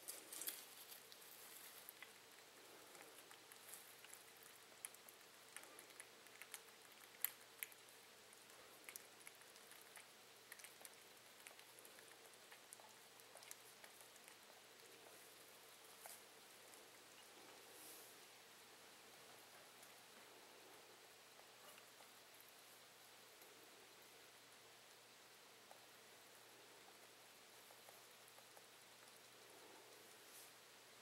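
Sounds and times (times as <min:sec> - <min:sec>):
rabbits rustling in hay: 0:00.0 - 0:02.3, 0:15.0 - 0:18.5, 0:30.1 - 0:30.7.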